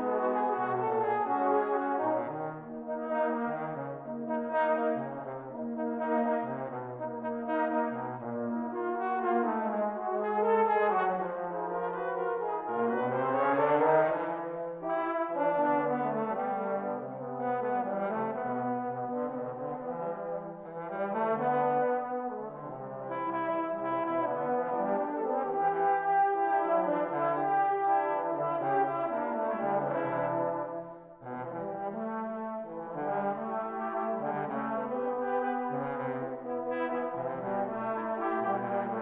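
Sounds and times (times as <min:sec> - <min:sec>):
tenor horn ensemble playing: 0:23.7 - 0:39.0.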